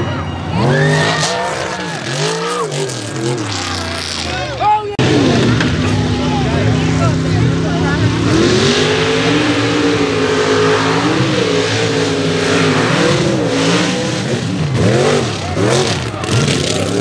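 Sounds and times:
truck engines revving: 0.0 - 17.0.

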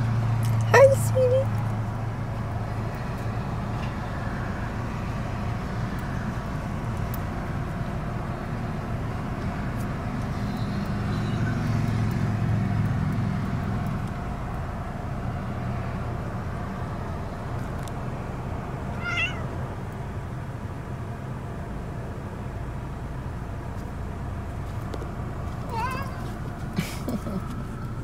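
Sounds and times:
car interior engine rumble: 0.0 - 28.0.

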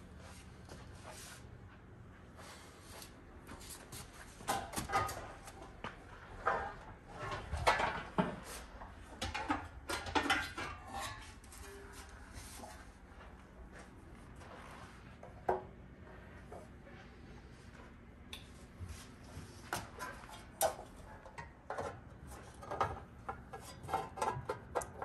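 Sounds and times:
parts clicking and knocking: 20.2 - 25.0.

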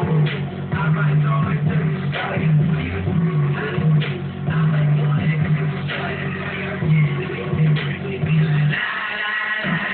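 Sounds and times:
song through speakers: 0.0 - 9.9.

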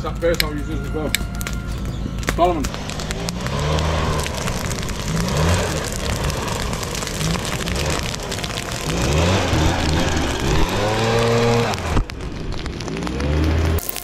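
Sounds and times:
grass fire crackling: 0.0 - 14.0
backpack blower engine revving: 8.9 - 12.0.

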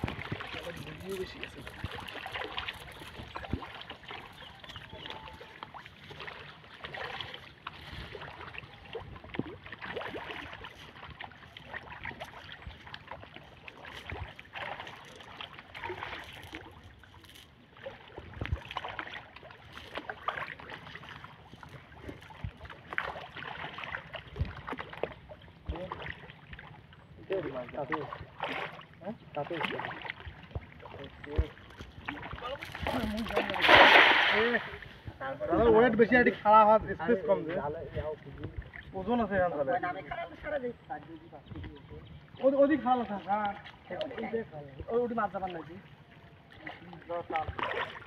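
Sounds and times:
wind on microphone: 0.0 - 3.7, 7.8 - 9.6, 18.2 - 18.7
water splashing and sloshing: 0.0 - 48.0.

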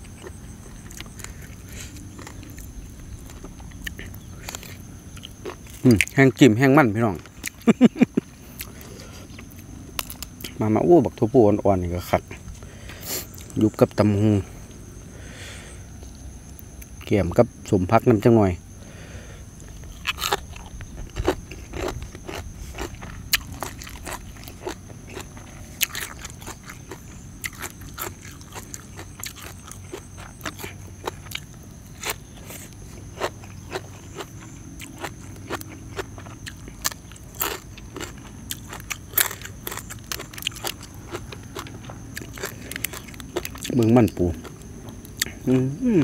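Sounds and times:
person chewing: 0.0 - 6.2, 7.2 - 10.6, 12.8 - 13.6, 19.6 - 46.0
crab shell crunching: 8.6 - 10.6, 19.7 - 45.6.

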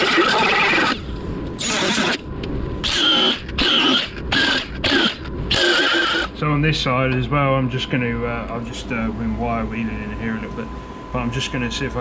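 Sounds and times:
power wire wheel brushing metal: 2.8 - 6.3.

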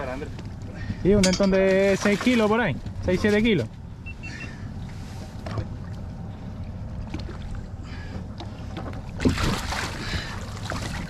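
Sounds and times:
boat rumbling on water: 0.0 - 11.0
water splashing: 4.8 - 11.0.

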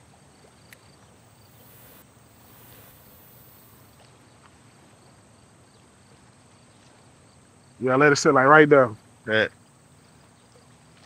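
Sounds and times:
insects buzzing drone: 0.0 - 4.2.

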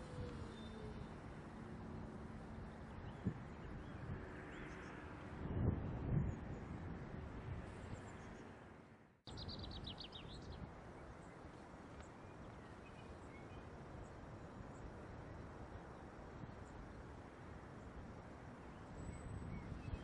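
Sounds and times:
wind noise on microphone: 0.0 - 8.4, 12.9 - 20.0.

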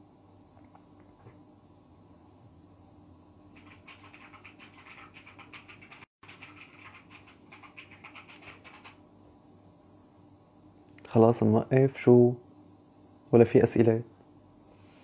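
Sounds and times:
scratching and rustling: 3.6 - 9.0.

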